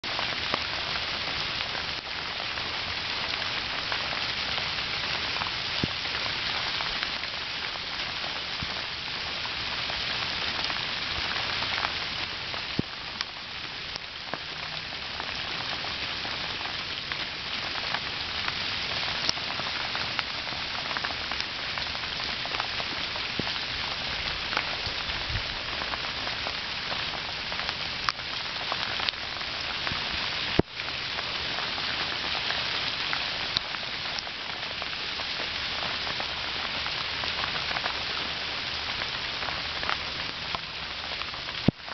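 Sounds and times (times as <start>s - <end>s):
hail falling: 0.0s - 41.9s.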